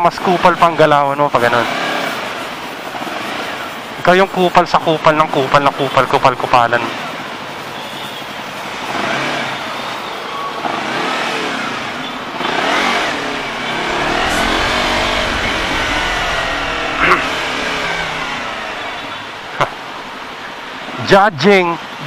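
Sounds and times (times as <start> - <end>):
steady road noise: 6.8 - 22.0
motorcycle engine revving: 10.7 - 20.9.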